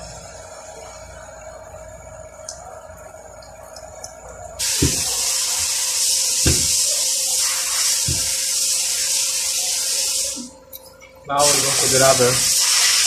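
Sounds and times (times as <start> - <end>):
loud high hiss: 4.6 - 10.5, 11.4 - 13.0.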